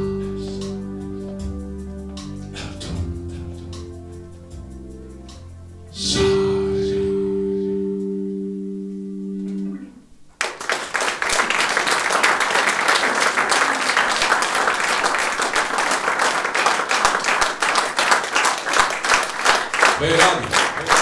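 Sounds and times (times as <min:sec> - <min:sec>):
electric guitar chord: 0:06.0 - 0:10.0
audience applause: 0:10.4 - 0:21.0.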